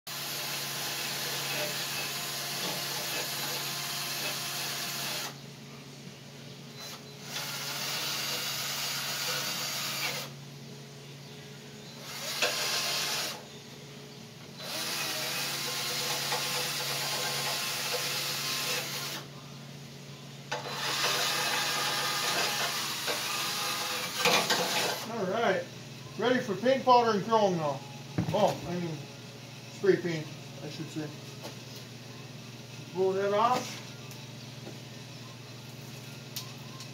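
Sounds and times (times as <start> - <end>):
hand-held power tool running: 0.1 - 5.4, 6.9 - 10.3, 12.0 - 13.4, 14.6 - 19.2, 20.5 - 25.1.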